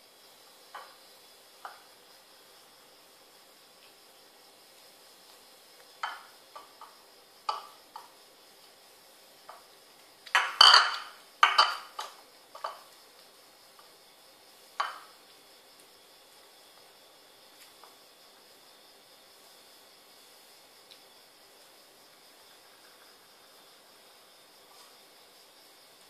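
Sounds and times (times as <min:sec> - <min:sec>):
ceramic bowl clattering on tiles: 0:10.3 - 0:12.9.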